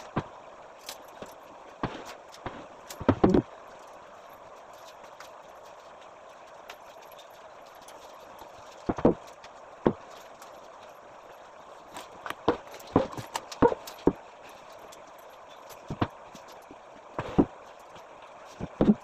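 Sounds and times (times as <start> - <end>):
household objects knocking and clunking: 8.9 - 9.2, 12.3 - 14.2.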